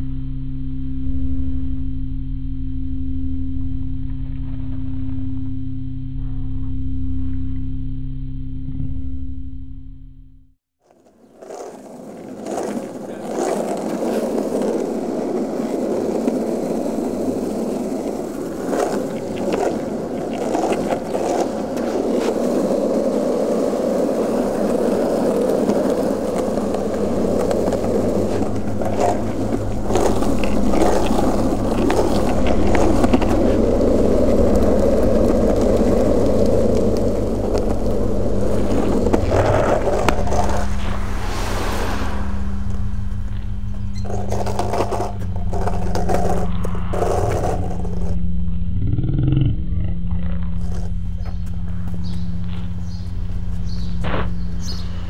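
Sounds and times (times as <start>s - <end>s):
steady low hum: 0.0s - 10.6s, 17.6s - 55.0s
longboard wheels rolling on pavement: 10.8s - 48.2s, 50.3s - 55.0s.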